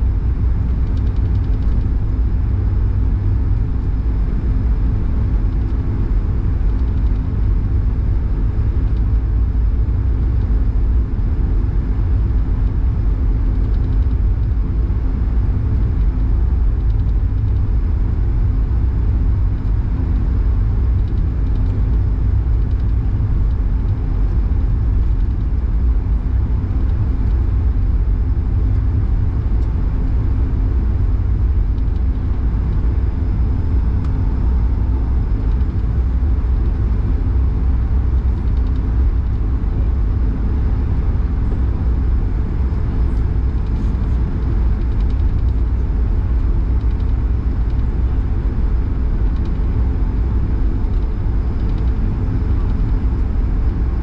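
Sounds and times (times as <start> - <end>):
aircraft cabin engine rumble: 0.0 - 54.0.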